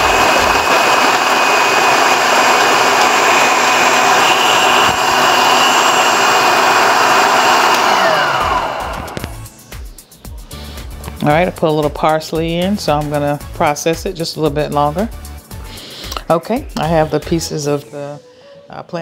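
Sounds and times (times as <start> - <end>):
food processor chopping: 0.0 - 9.4
motor winding down: 0.0 - 9.4.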